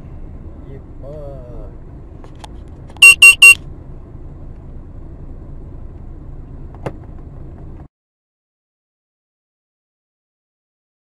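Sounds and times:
low rumble of car in motion: 0.0 - 7.9
short electronic beeps: 3.0 - 3.6.

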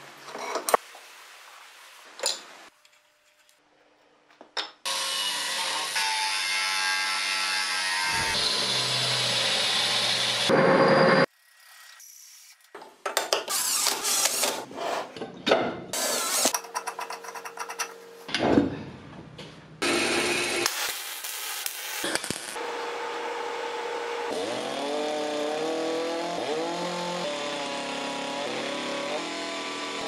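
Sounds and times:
power tool running: 7.9 - 12.0, 19.8 - 21.0, 22.0 - 30.0.

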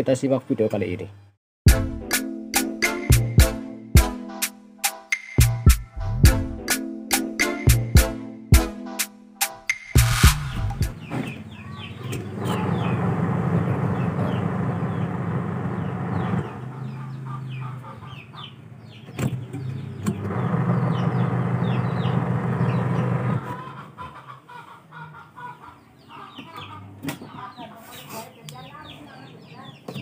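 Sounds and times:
birds chirping: 10.0 - 30.0
washing machine motor humming: 12.3 - 16.6, 19.9 - 23.4.

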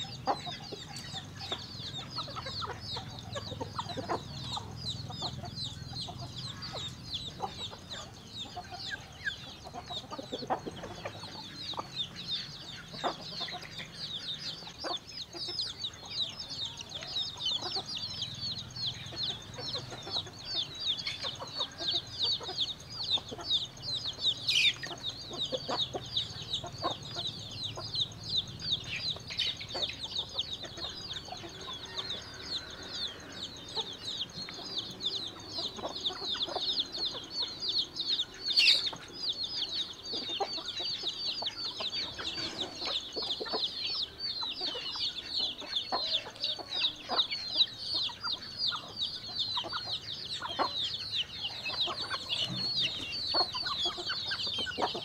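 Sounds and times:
chickens peeping: 0.0 - 55.0.

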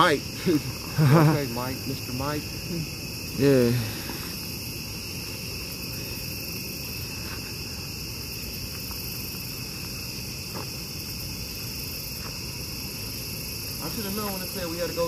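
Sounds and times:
night insects chirring: 0.0 - 15.0
faint footsteps on dirt: 6.9 - 11.2, 12.1 - 12.6.

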